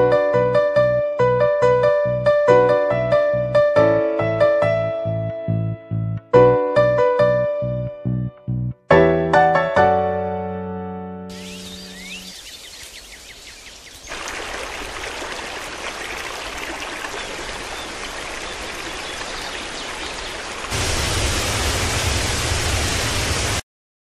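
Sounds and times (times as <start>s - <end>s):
faint high chirps: 11.4s - 14.1s
river water rushing: 14.0s - 23.6s.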